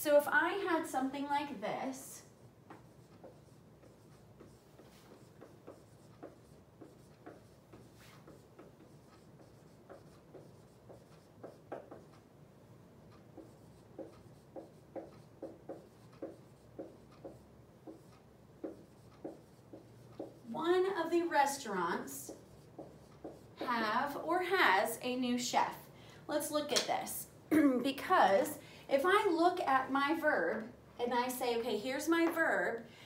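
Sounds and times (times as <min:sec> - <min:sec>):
marker writing on whiteboard: 0:02.3 - 0:24.3.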